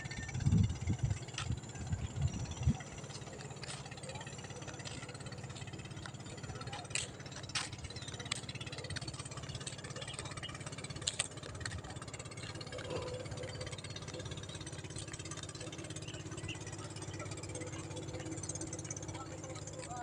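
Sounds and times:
engine running at low speed: 0.0 - 20.0.

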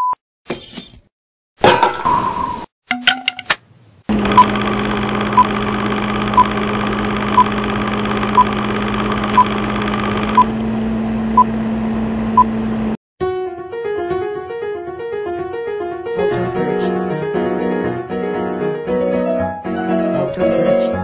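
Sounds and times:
film projector whirring: 4.1 - 13.0.

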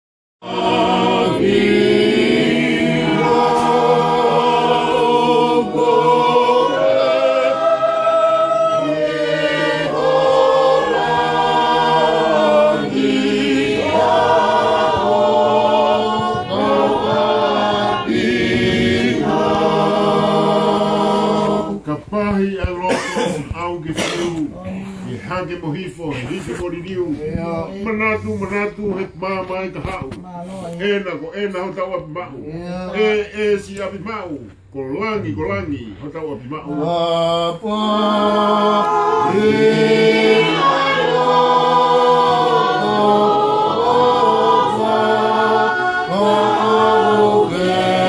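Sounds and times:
group singing a hymn unaccompanied: 0.4 - 24.2, 35.0 - 48.0.

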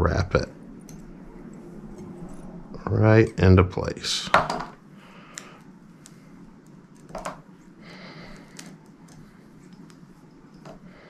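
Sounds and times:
light handling ticks: 8.3 - 10.8.

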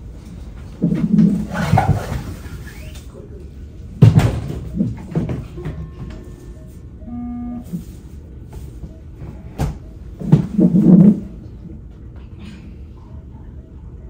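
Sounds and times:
short electronic beeps: 5.6 - 7.9.

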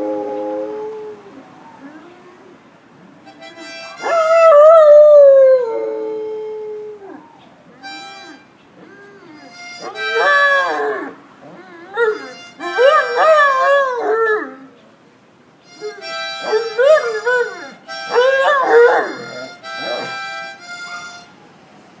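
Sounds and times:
harmonica phrases: 3.2 - 4.3, 7.8 - 10.9, 11.9 - 13.6, 15.6 - 21.5
dog howling: 9.8 - 14.7, 15.8 - 20.2.

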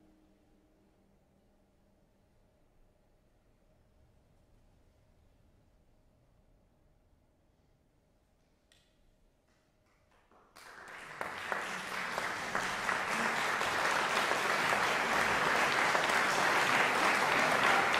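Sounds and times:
audience applause: 10.1 - 17.9.

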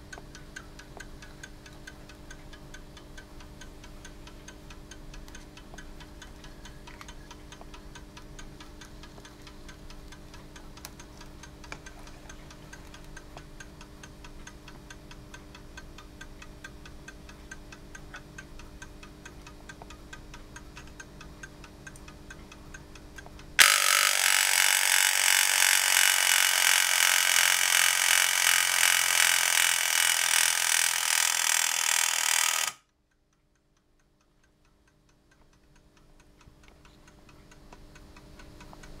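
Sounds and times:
clock ticking: 0.0 - 39.0
alarm clock bell ringing: 23.6 - 32.8.

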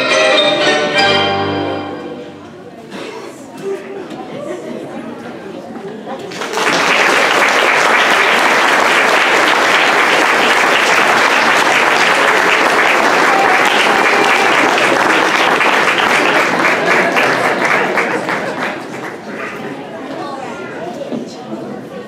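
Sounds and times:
audience clapping: 6.3 - 19.8.

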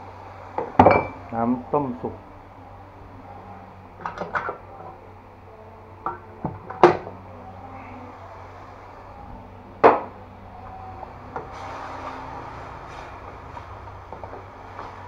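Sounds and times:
steady low background noise: 0.0 - 15.0.

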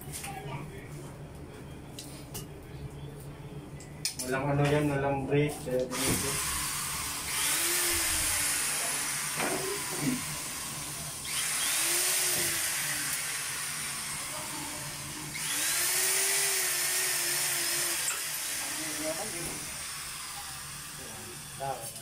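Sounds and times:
electric power drill running: 5.9 - 22.0.

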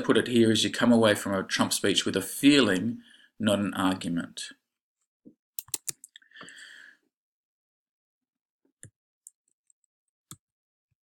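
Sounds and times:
sharp computer clicks: 5.6 - 6.1.

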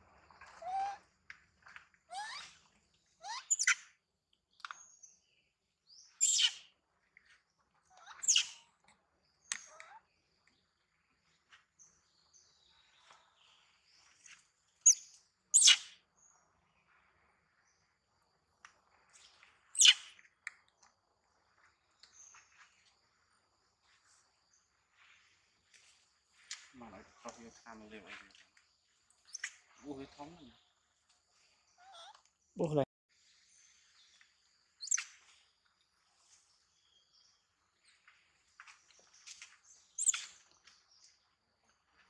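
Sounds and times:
high-pitched animal calls: 7.9 - 8.7.

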